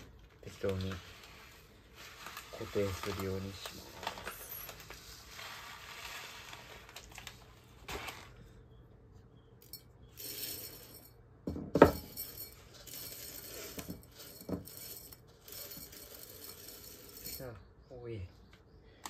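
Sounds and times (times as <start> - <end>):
granules pouring into jar: 0.0 - 7.4, 12.1 - 17.5.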